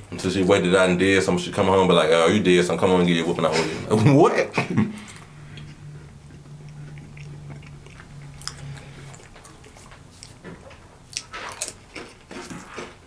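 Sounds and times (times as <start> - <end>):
low steady hum: 0.0 - 13.0
crackers crunching when chewed: 5.0 - 13.0.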